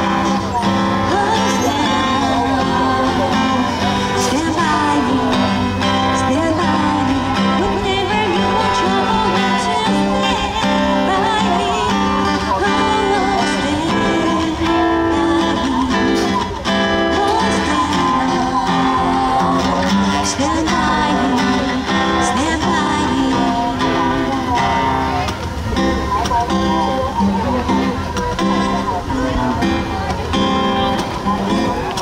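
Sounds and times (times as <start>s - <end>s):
person singing: 0.0s - 25.3s
acoustic guitar: 0.0s - 32.0s.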